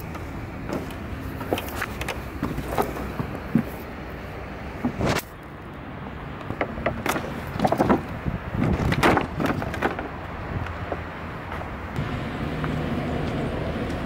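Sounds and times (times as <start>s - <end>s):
wooden slats knocking and clattering: 0.0s - 3.8s, 6.4s - 11.7s.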